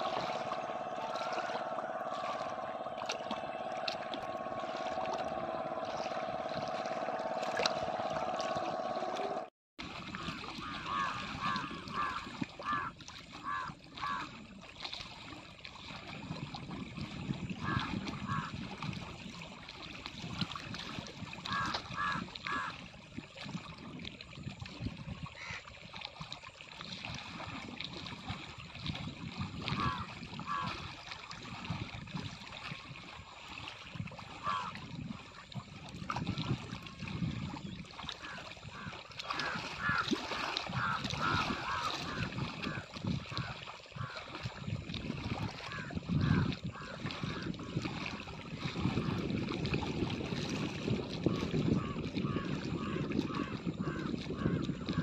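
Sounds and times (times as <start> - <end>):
low rumble: 0.0 - 9.5
distant motorboat engine droning: 0.0 - 14.2, 29.8 - 30.7, 34.1 - 35.4, 37.8 - 44.5
water lapping at shore: 0.0 - 55.0.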